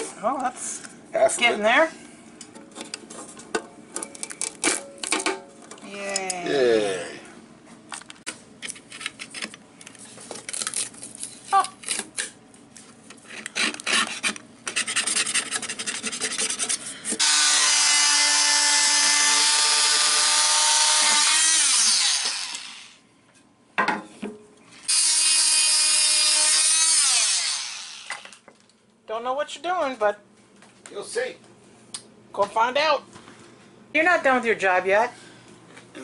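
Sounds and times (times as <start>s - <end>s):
blade scraper scraping sealant: 13.3s - 17.4s
electric saw cutting wood: 17.2s - 23.0s, 24.9s - 28.4s.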